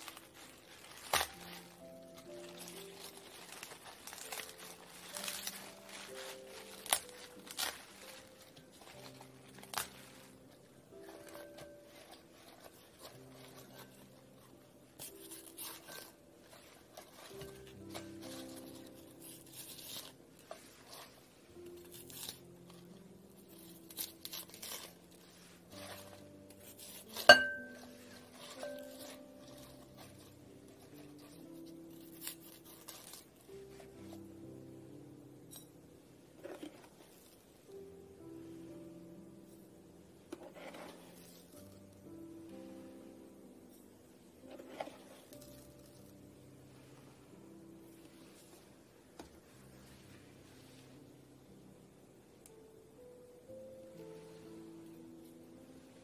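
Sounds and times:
cabbage leaves snapping: 0.0 - 10.2, 21.7 - 22.5, 23.6 - 25.0
cabbage leaves crinkling and rustling: 0.0 - 34.4
knife clinking on glass bowl: 27.2 - 27.8.

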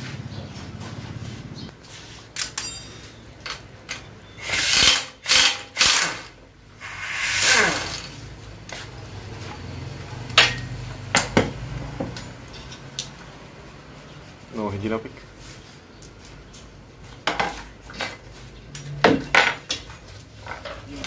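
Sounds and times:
sharp metal clinks: 2.4 - 4.1.

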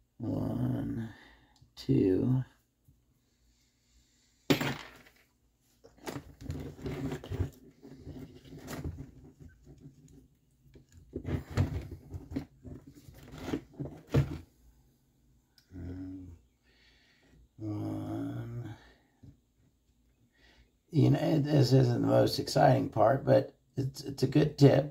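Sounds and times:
parts clattering and scraping: 4.5 - 14.4.

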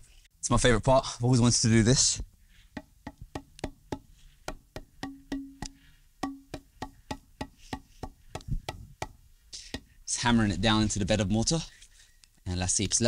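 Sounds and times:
wood-block beat: 2.8 - 9.2.

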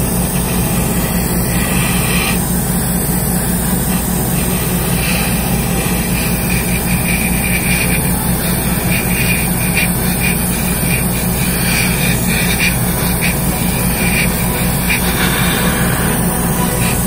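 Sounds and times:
extractor fan rushing air: 0.0 - 17.0
low hum: 0.0 - 17.0.

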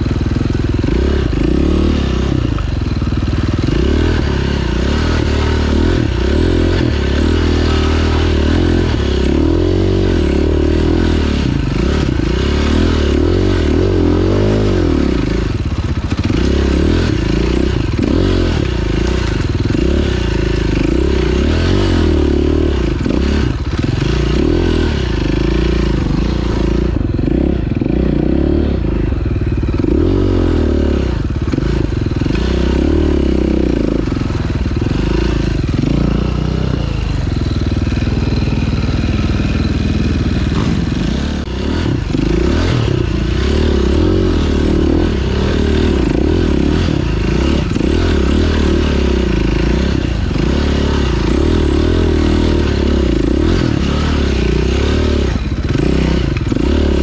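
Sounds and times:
motorcycle engine revving: 0.0 - 57.0
motorcycle clattering: 11.1 - 28.0.

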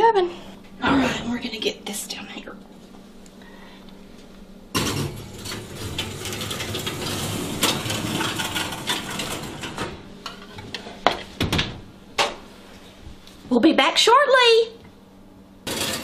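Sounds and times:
metal oven rack rattling and scraping: 4.8 - 10.4, 15.7 - 16.0.

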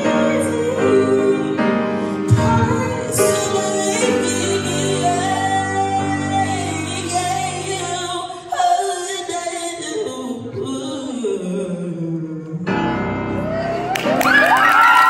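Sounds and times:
woman singing: 0.0 - 14.2
grand piano: 0.0 - 15.0
audience cheering and whooping: 13.8 - 15.0.

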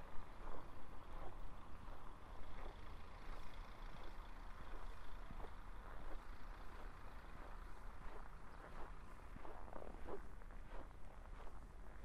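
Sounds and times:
distant road traffic rumble: 0.0 - 12.0
footsteps crunching on frozen snow: 4.7 - 12.0.

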